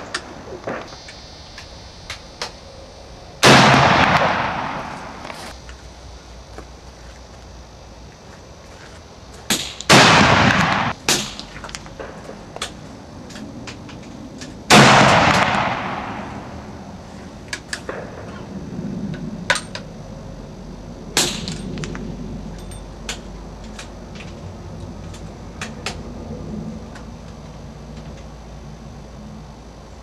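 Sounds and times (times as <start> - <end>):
carbine gunshot: 3.4 - 5.5, 9.5 - 12.3, 14.7 - 16.7.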